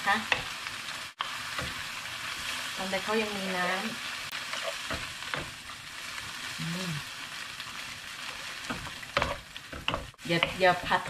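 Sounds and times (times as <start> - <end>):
clams and onion sizzling in pan: 0.0 - 11.0
wooden utensils knocking on pan: 8.7 - 11.0.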